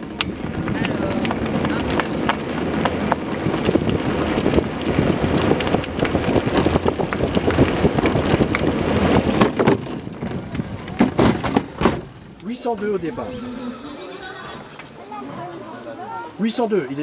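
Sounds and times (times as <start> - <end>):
wind on microphone: 0.0 - 12.1
soapbox car rattling on asphalt: 0.0 - 17.0.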